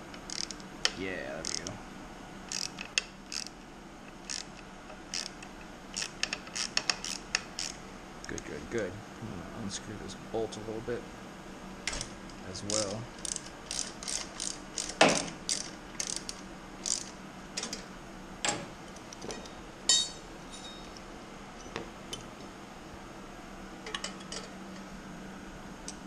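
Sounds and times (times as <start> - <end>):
socket ratchet clicking: 0.2 - 0.6, 1.4 - 1.7, 2.5 - 3.6, 4.2 - 7.8, 12.7 - 17.7.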